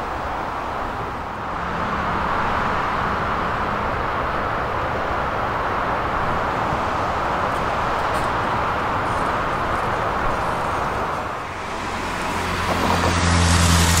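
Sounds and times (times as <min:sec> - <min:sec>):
electric tram running on track: 0:00.0 - 0:14.0
traffic hum: 0:00.0 - 0:14.0.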